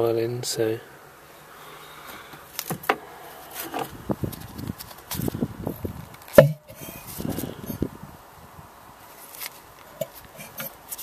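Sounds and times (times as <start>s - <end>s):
handling knocks and rustles: 2.1s - 7.5s.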